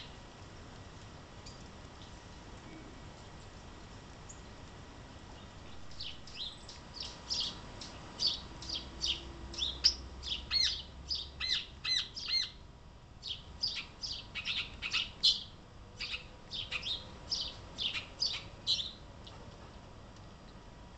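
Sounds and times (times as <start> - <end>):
bird chirping: 5.4 - 12.6, 13.2 - 19.0.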